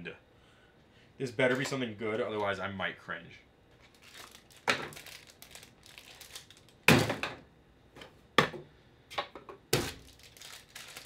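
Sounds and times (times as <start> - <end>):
plastic packaging crinkling: 3.8 - 6.9, 9.8 - 11.0.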